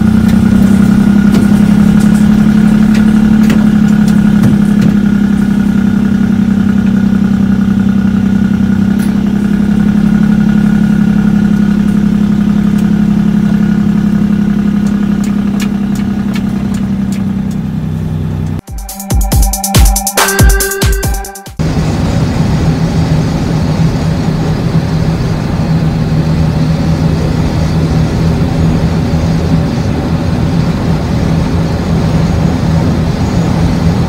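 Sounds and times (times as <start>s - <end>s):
truck diesel engine droning: 0.0s - 34.0s.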